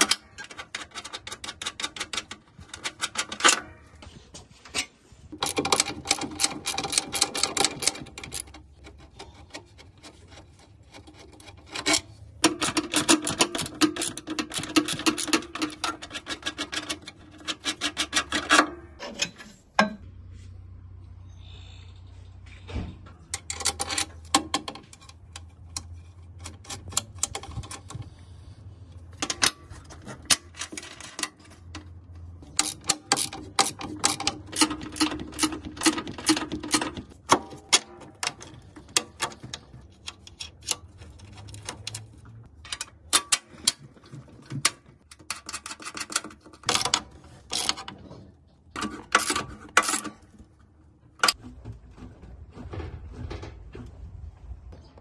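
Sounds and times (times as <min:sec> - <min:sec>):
metallic clicks of hand tools: 0:11.4 - 0:19.3.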